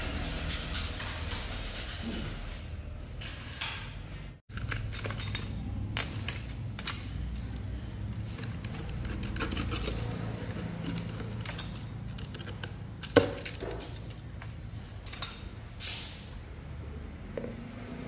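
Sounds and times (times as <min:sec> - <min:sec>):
hard objects clinking: 0:04.5 - 0:07.6.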